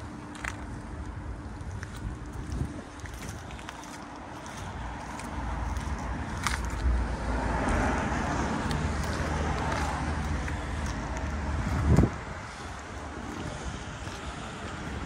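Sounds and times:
road traffic: 0.0 - 15.0
wind rumbling on microphone: 0.0 - 15.0
vehicle passing by: 3.8 - 15.0.

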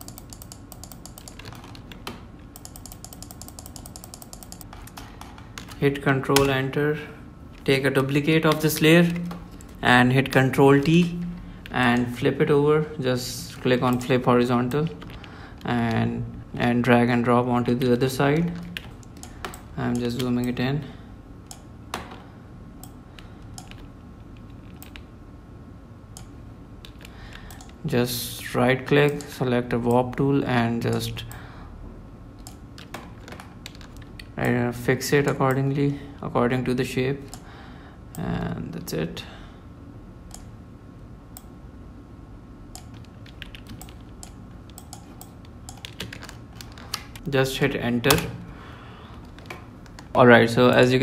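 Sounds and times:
computer mouse and keyboard clicks: 0.0 - 6.6, 18.3 - 20.6, 22.8 - 25.1, 26.2 - 27.8, 32.4 - 34.6, 42.8 - 47.3
low steady hum: 0.0 - 51.0.

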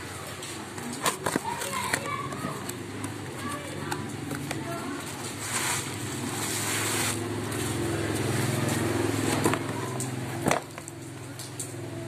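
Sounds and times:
cardboard box tearing: 5.1 - 7.3.

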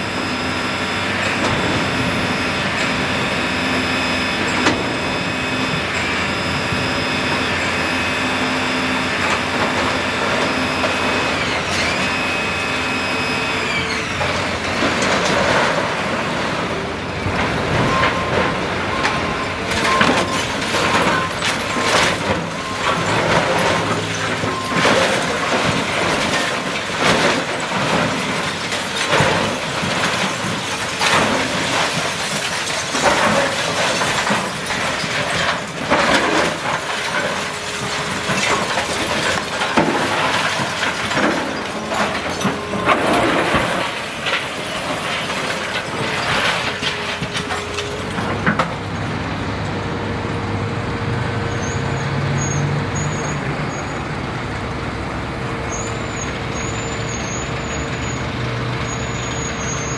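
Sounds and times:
diesel engine running: 0.0 - 59.9
crashes of breaking concrete and debris: 19.8 - 48.8.

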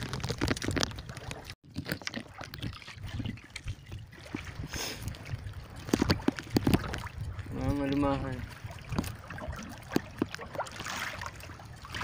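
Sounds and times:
light clicks and wet rustling of fish: 0.0 - 12.0.

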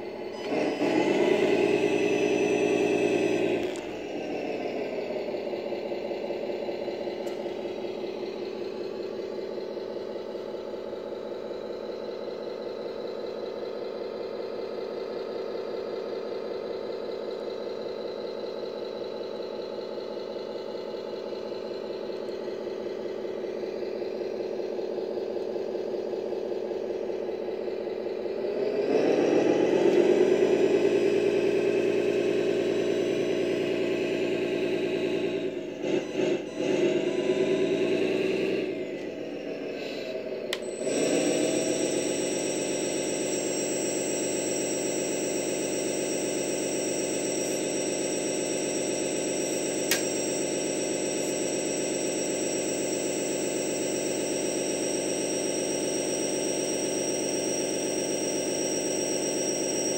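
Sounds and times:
toy truck diesel engine sound: 0.0 - 59.9.

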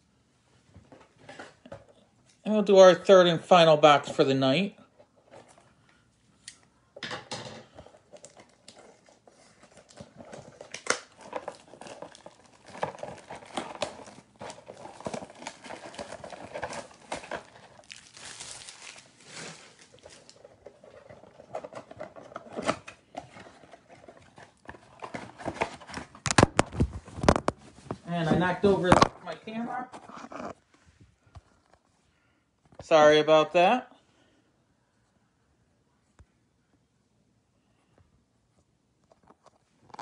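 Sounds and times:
plastic wrap crinkling and tearing: 7.9 - 30.6.

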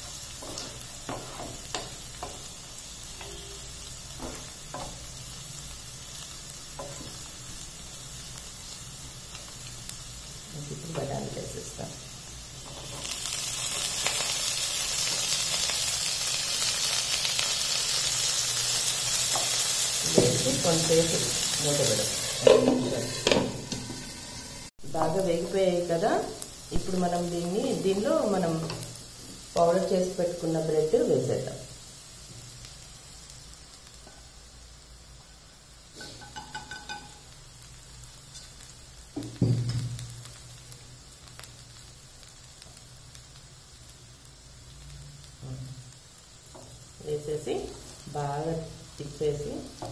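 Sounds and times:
vegetables sizzling in oil: 0.0 - 49.9.

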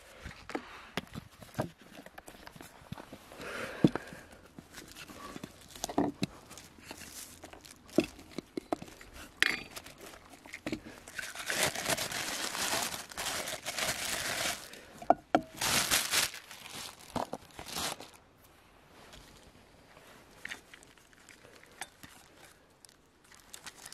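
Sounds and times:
plastic bag crinkling: 4.7 - 14.9, 15.5 - 18.3, 20.4 - 23.9.

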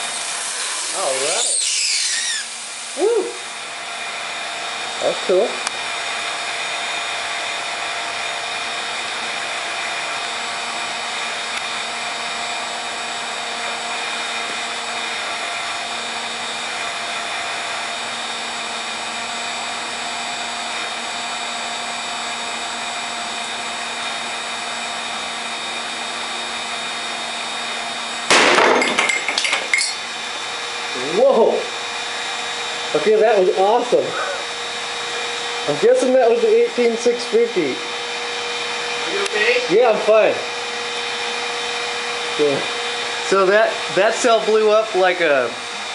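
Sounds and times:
heat gun fan hissing: 0.0 - 45.9
battery exploding with a bang: 28.3 - 29.0.

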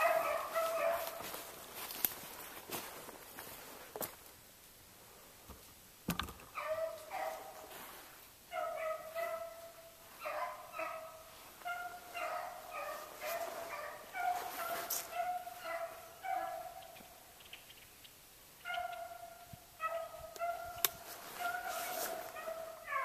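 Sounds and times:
hounds baying: 0.0 - 1.6, 6.5 - 7.8, 8.5 - 17.2, 18.6 - 23.0.

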